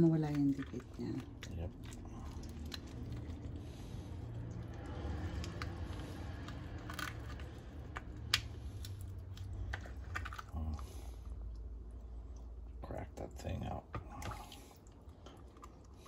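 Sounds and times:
lobster shell crackling: 0:00.0 - 0:11.4
low steady rumble: 0:00.0 - 0:16.0.

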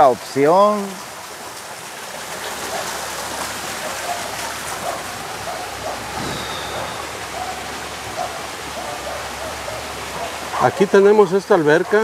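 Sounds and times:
falling water rushing: 0:00.0 - 0:12.0.

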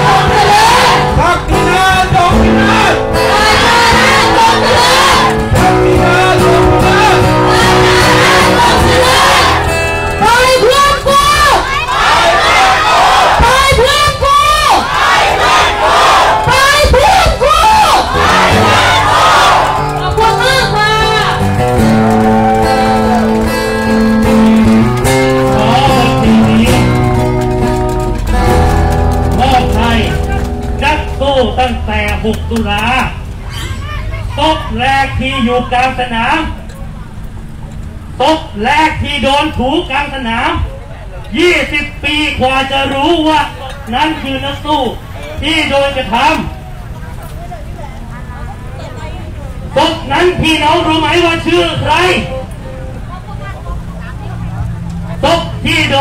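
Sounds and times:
song over loudspeakers: 0:00.0 - 0:11.6, 0:18.1 - 0:33.1
acoustic guitar music: 0:00.0 - 0:13.8, 0:17.8 - 0:34.8, 0:50.4 - 0:56.0.

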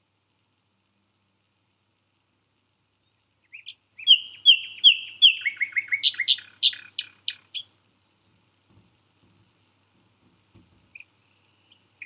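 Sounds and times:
nightingale singing: 0:03.0 - 0:08.3, 0:10.9 - 0:12.0.

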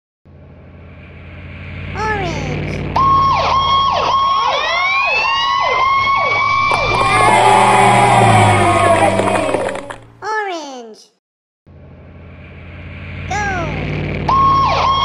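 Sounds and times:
low engine rumble: 0:00.3 - 0:10.2, 0:11.7 - 0:15.0
fire truck siren: 0:00.8 - 0:10.2, 0:14.1 - 0:15.0.

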